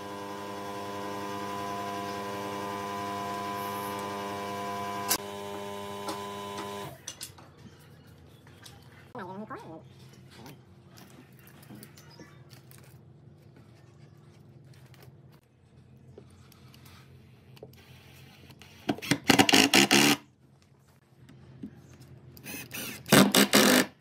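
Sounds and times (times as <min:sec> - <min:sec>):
quiet handling sounds: 0:09.9 - 0:18.6.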